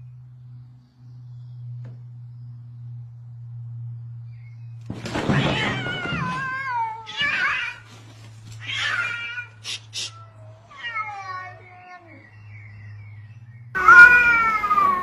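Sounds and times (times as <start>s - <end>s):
steady low hum: 0.0s - 5.0s
cats yowling: 5.1s - 15.0s.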